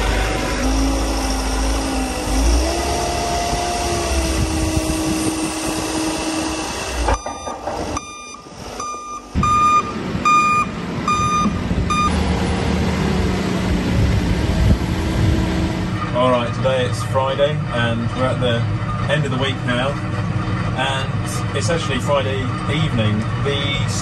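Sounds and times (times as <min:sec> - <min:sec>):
diesel engine working under load: 0:00.0 - 0:24.0
reversing alarm beeping: 0:07.0 - 0:12.2.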